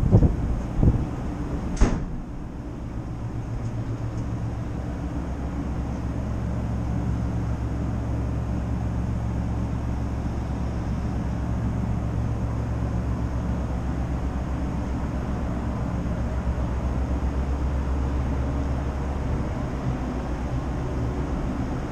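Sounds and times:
ferry engines droning: 0.0 - 21.9.

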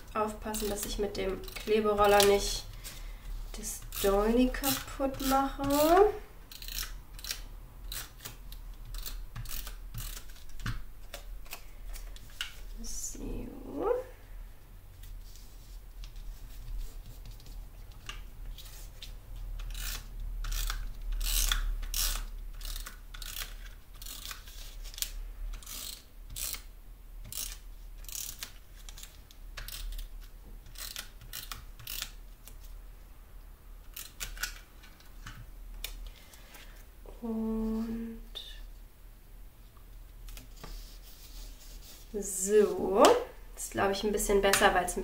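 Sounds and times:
glue roller rasping clicks: 3.8 - 10.8.

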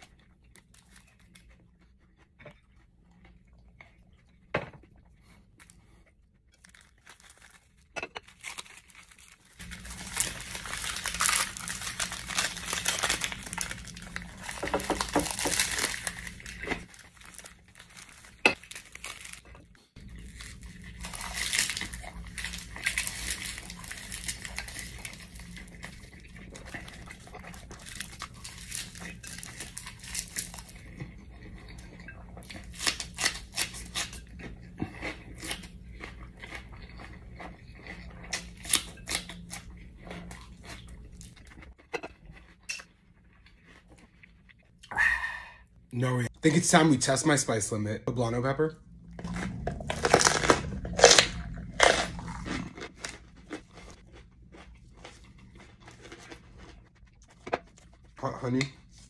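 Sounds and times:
seaweed snack crunching: 6.6 - 19.4, 20.1 - 30.9, 49.2 - 58.1.

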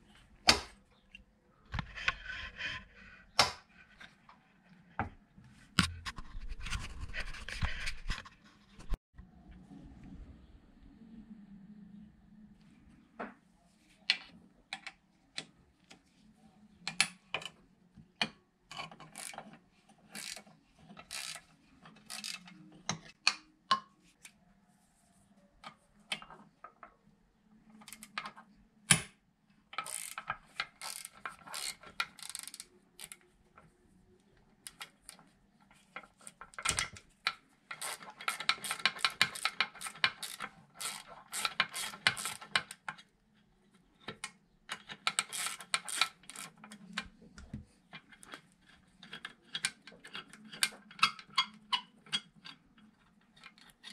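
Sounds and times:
ratchet wrench clicking: 21.1 - 21.4, 29.8 - 30.2, 30.8 - 33.2, 37.8 - 42.4.

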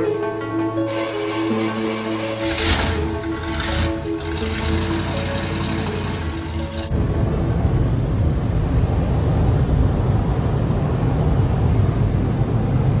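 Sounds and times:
short music: 0.0 - 8.5
muffled car wash air blowers: 0.9 - 13.0.

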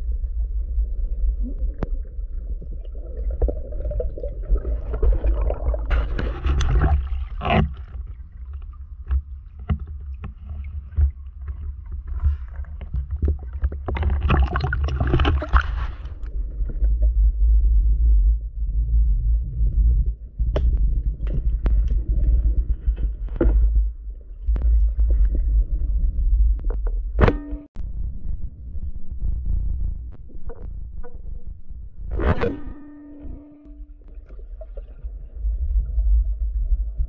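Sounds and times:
underwater low rumble: 0.0 - 37.0
water sloshing and splashing: 1.2 - 17.2, 30.3 - 36.1.

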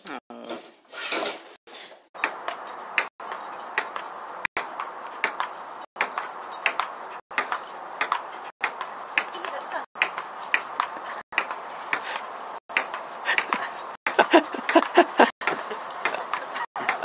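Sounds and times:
table tennis ball bouncing: 4.6 - 12.0, 12.7 - 14.9.

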